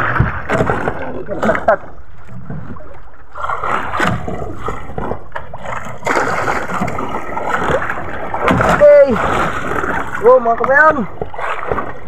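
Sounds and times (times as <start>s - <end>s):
water splashing against boat hull: 0.0s - 12.0s.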